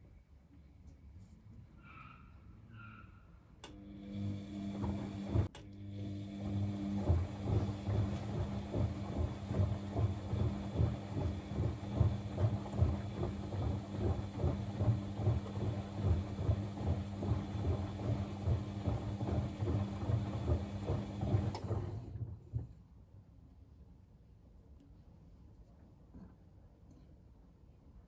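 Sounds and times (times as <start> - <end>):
washing machine motor hum: 3.6 - 22.8.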